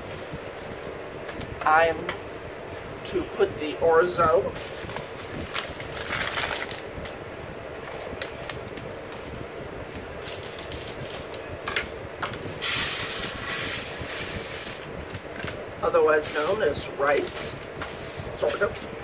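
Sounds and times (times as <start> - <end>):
paper package crinkling: 4.6 - 7.2, 10.2 - 11.4.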